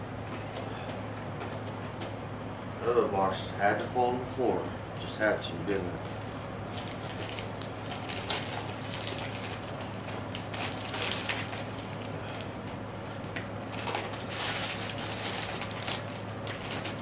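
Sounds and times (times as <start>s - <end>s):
steady low hum: 0.0s - 17.0s
wrapping paper tearing and crumpling: 6.1s - 17.0s.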